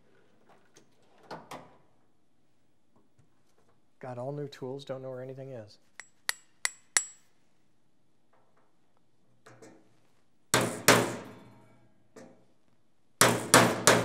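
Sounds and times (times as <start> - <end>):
hammer tapping steel punch: 6.0 - 7.2, 13.2 - 14.0.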